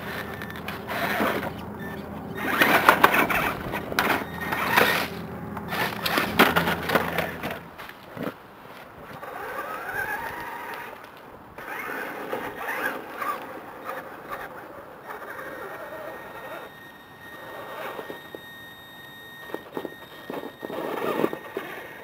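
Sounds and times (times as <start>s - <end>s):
electric motor whine: 0.0s - 7.8s, 11.6s - 22.0s
toy truck clattering on rocks: 2.4s - 14.6s.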